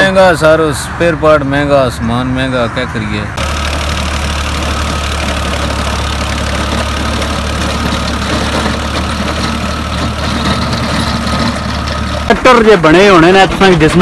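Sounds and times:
tractor engine running: 3.4 - 14.0.

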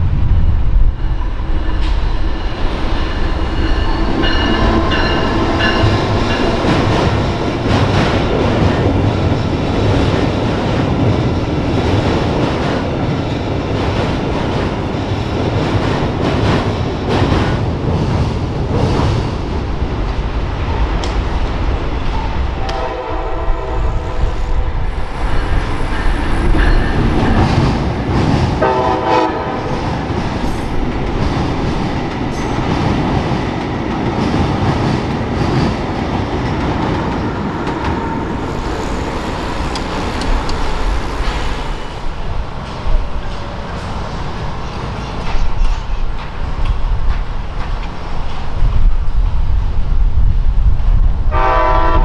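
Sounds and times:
passenger train rumbling past: 0.0 - 52.0
train air horn blasts: 22.6 - 24.6, 28.6 - 29.7, 51.3 - 52.0.

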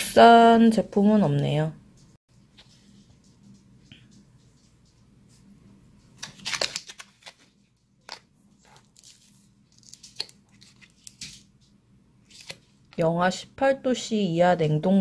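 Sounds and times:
plastic pouch crinkling: 6.2 - 11.2.

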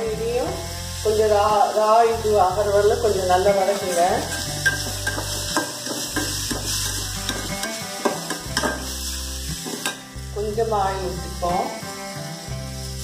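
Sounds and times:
vegetables sizzling in oil: 0.0 - 13.0
spoon scraping metal pan: 3.7 - 9.0.

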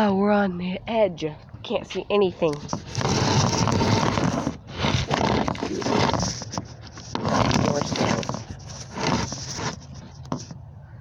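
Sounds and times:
phone rubbing and knocking: 1.8 - 10.6.

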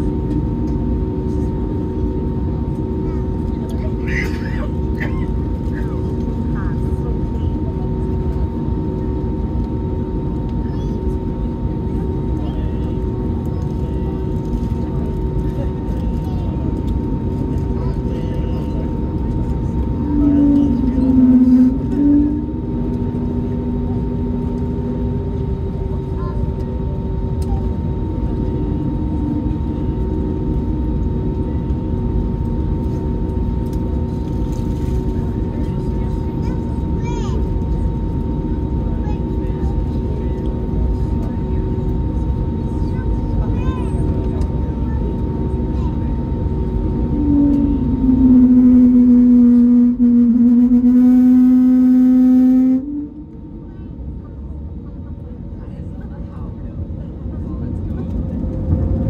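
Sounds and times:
steady high hum: 0.0 - 42.6, 43.4 - 59.0
airliner cabin engine noise: 0.0 - 59.0
loud droning tone: 11.2 - 40.2, 44.2 - 55.9
airframe rumble: 18.7 - 26.0, 46.1 - 54.3.

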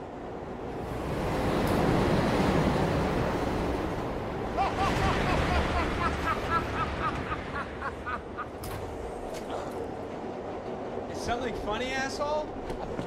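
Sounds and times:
subway train rumbling: 0.0 - 13.0
man laughing: 4.5 - 8.6.

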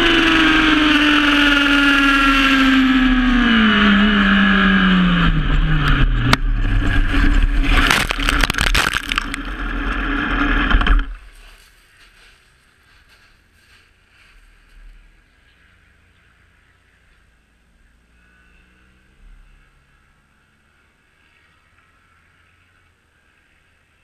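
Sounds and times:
motorcycle scraping and tumbling: 0.0 - 16.5
faint wind: 0.0 - 24.0.

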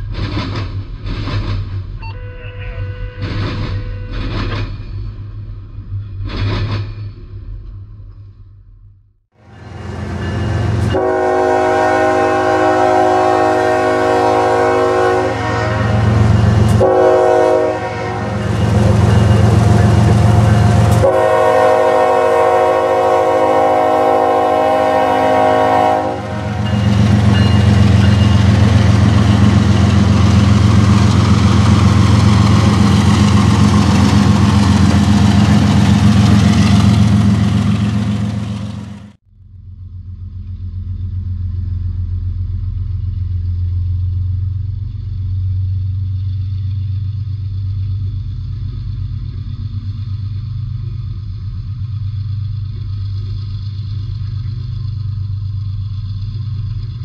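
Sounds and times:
train wheel noise: 0.0 - 8.6, 9.4 - 39.2, 39.8 - 57.0
locomotive engine rumble: 0.0 - 57.0
train horn chord: 2.1 - 4.2, 9.4 - 33.0.

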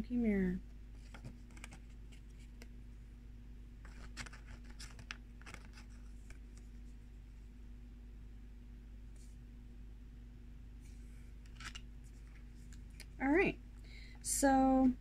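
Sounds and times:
low electrical hum: 0.0 - 15.0
paper pages rustling: 1.0 - 2.7, 3.8 - 6.9, 11.4 - 13.1.

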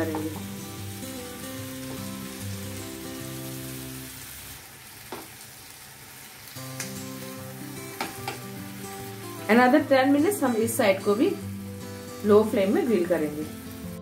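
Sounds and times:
background music: 0.0 - 4.1, 6.6 - 14.0
chicken sizzling in a grill pan: 0.0 - 14.0
metal tongs clicking on a pan: 6.8 - 7.0.

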